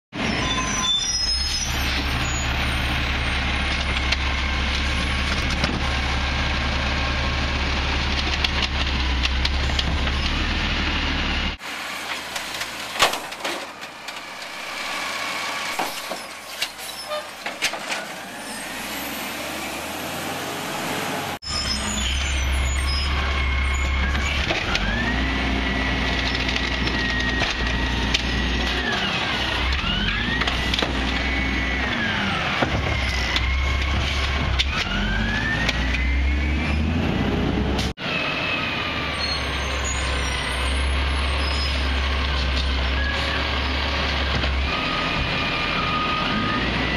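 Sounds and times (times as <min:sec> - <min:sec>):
diesel engine revving: 0:00.2 - 0:13.0, 0:14.0 - 0:16.0, 0:18.0 - 0:46.9
cart emptying knocks and clatter: 0:12.1 - 0:14.6, 0:15.7 - 0:18.3, 0:32.5 - 0:34.6.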